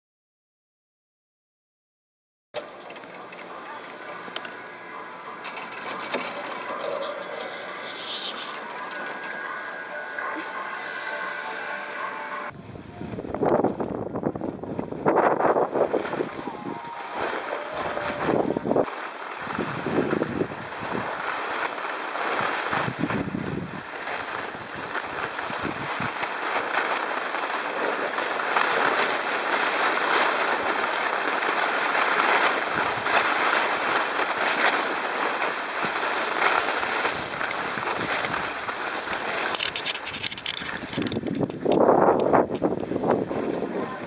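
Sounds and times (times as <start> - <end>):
skis scraping over snow: 2.6 - 12.6, 13.3 - 44.0
wind on microphone: 12.5 - 30.9, 31.8 - 34.9, 35.8 - 44.0.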